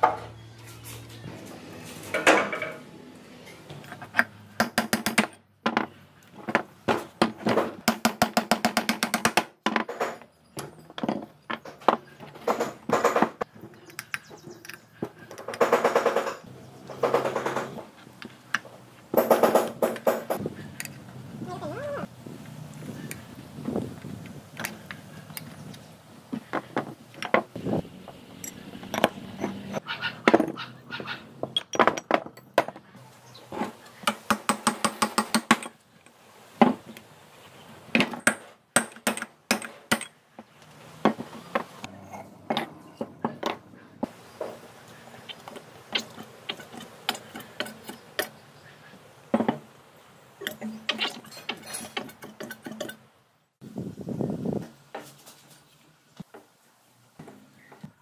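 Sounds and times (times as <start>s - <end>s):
metal tools clinking: 28.3s - 30.6s, 50.4s - 53.0s.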